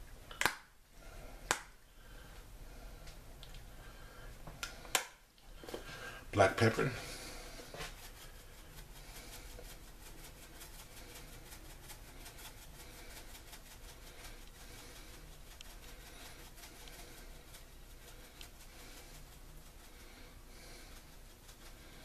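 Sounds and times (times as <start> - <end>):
pepper shaker ticks: 9.3 - 20.1.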